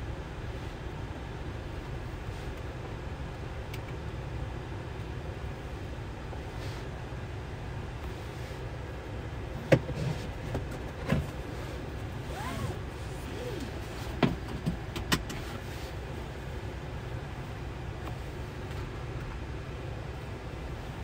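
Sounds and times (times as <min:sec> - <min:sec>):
clicks and knocks in cabin: 0:09.7 - 0:11.4, 0:14.1 - 0:15.6
seatbelt pulled: 0:11.6 - 0:14.2.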